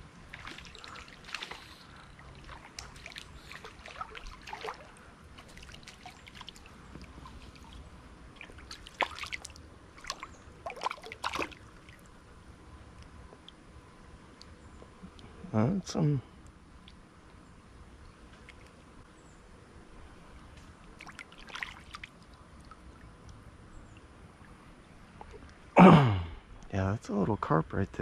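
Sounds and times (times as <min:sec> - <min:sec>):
water splashes and drips: 0:00.0 - 0:12.2, 0:13.0 - 0:13.7, 0:18.3 - 0:18.8, 0:20.5 - 0:25.6.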